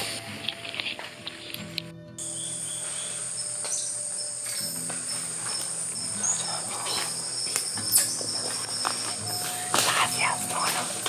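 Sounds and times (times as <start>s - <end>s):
soft background music: 0.0s - 11.0s
insects whining: 1.6s - 11.0s
insect pulsed chirp: 2.2s - 11.0s.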